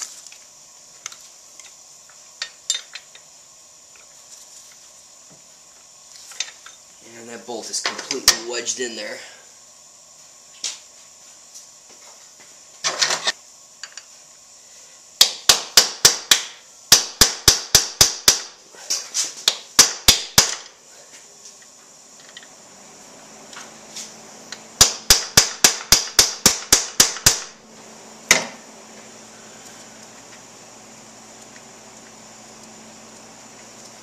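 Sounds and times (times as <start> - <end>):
tools clattering: 2.4 - 3.3, 6.2 - 6.8
hammer striking steel punch: 15.2 - 18.5, 19.8 - 20.7, 24.8 - 27.5.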